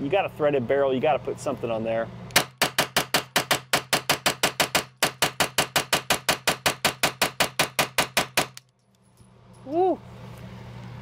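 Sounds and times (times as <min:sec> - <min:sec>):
rapid gunshots: 0:02.4 - 0:08.6.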